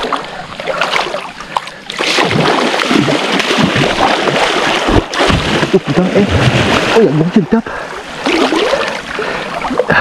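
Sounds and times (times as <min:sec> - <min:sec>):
fish splashing in water: 0:00.0 - 0:07.1
low thumps: 0:02.2 - 0:07.5.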